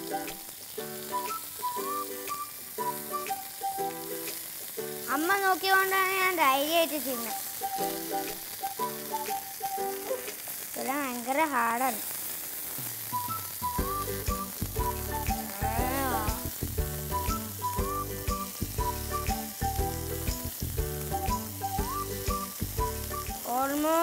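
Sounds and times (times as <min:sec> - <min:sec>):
background music with beat: 0:00.0 - 0:05.1, 0:07.2 - 0:10.5, 0:12.8 - 0:23.5
chicken sizzling in oil: 0:00.0 - 0:24.0.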